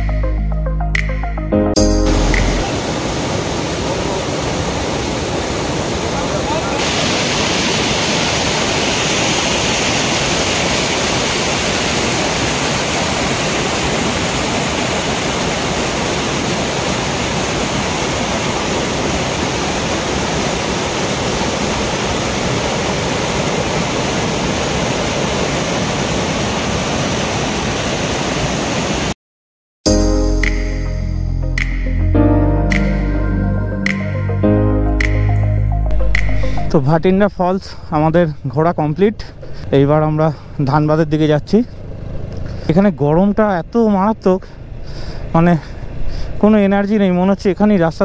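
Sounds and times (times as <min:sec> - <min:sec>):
waterfall roaring over rock: 0:02.5 - 0:29.1.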